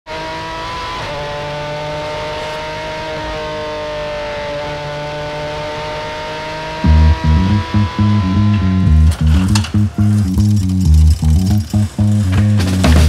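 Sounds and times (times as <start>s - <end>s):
race car engine at high revs: 0.0s - 8.8s.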